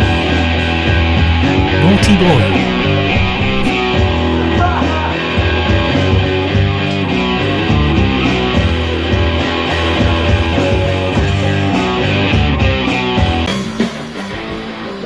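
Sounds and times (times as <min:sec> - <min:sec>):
bass guitar: 0:01.5 - 0:03.8.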